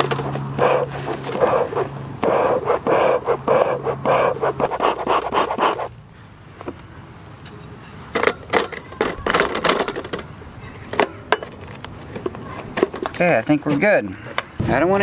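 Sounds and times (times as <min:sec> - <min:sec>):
bellows puffing: 0:00.0 - 0:05.9.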